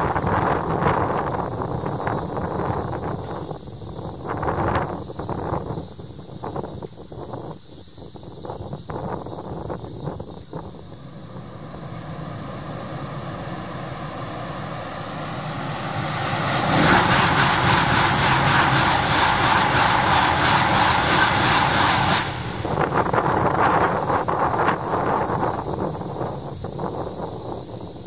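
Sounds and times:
high-speed train passing: 0:00.0 - 0:04.8, 0:10.3 - 0:26.5.

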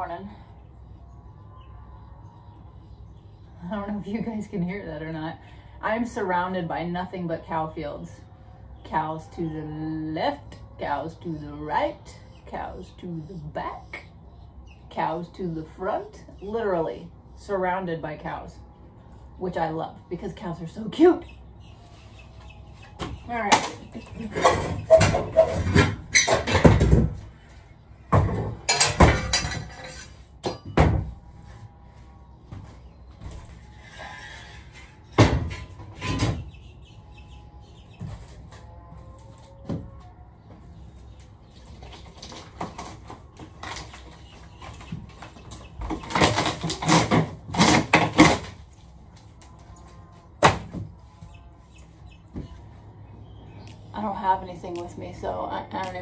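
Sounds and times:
metal bar clanking and rattling: 0:28.6 - 0:30.8.

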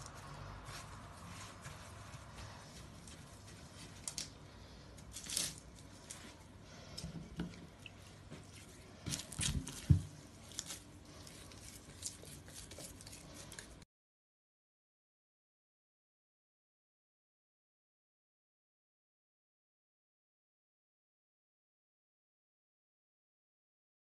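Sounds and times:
hands squishing dough: 0:00.0 - 0:13.8.

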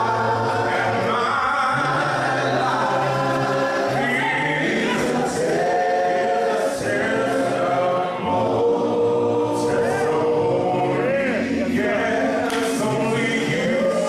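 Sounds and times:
choir singing a hymn: 0:00.0 - 0:14.0.

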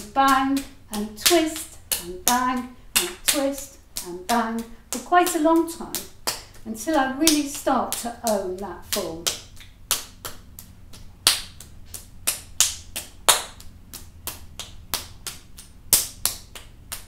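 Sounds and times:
clay slapped between palms: 0:05.9 - 0:06.6, 0:09.2 - 0:17.0.

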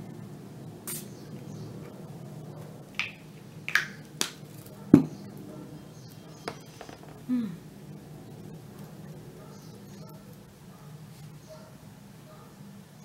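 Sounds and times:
faint low hum: 0:00.0 - 0:13.0
spray bottle spritzes: 0:00.9 - 0:01.2.

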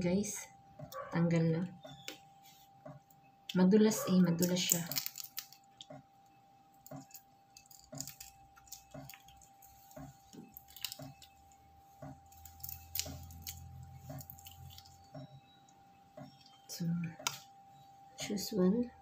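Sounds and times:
shrimp shells crackling: 0:04.4 - 0:06.0, 0:06.7 - 0:15.6.

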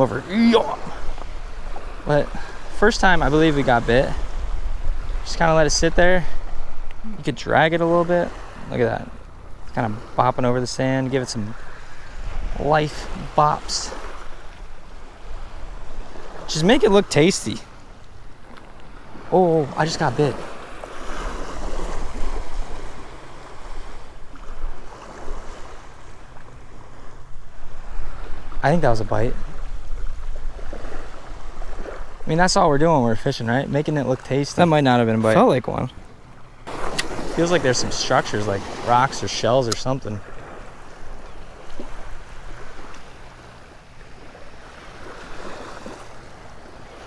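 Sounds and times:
low wind rumble: 0:00.0 - 0:19.8
small waves breaking: 0:00.0 - 0:47.0
wind rumbling on microphone: 0:00.8 - 0:07.4, 0:20.9 - 0:32.9.

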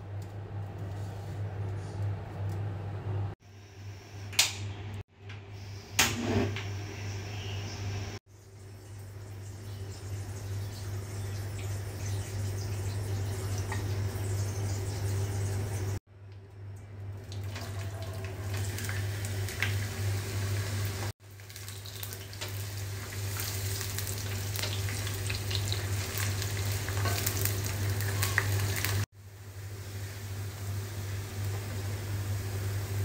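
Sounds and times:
vegetables sizzling in oil: 0:17.5 - 0:33.0.

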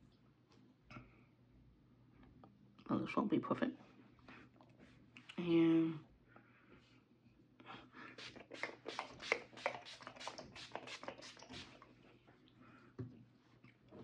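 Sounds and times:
spray bottle hissing: 0:08.2 - 0:11.8.

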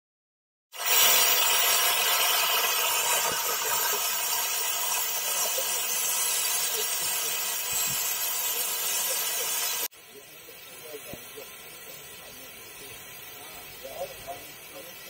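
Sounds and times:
steam hissing from locomotive: 0:00.8 - 0:15.0.

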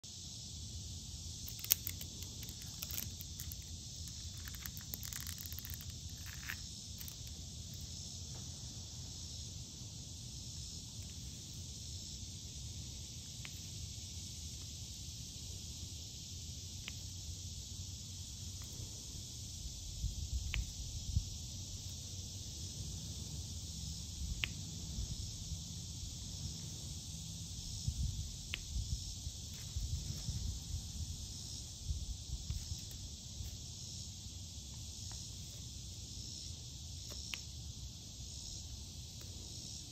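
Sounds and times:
cicadas droning: 0:00.0 - 0:39.9
faint clicks of drill pen: 0:01.4 - 0:07.4.

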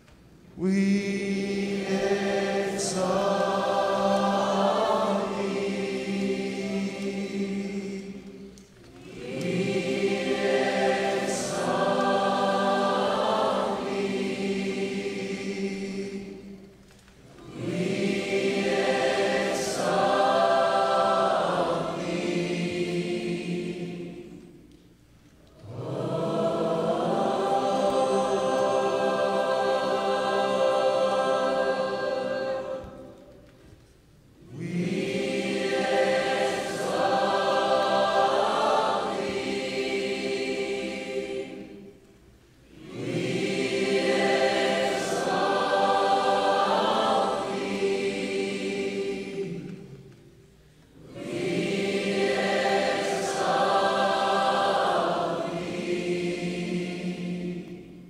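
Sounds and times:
congregation singing unaccompanied: 0:00.0 - 0:58.0.

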